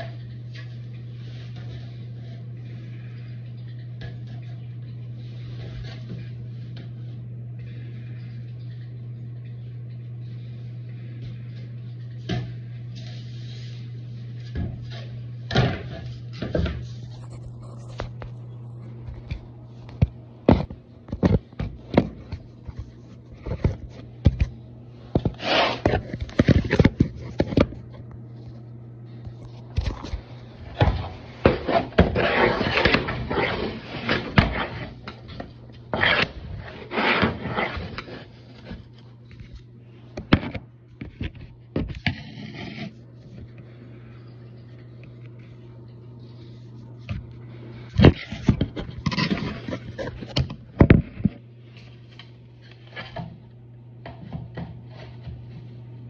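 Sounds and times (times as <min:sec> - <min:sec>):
steady hum: 0:00.0 - 0:56.0
scraping and rustling: 0:11.9 - 0:43.6, 0:46.2 - 0:53.3.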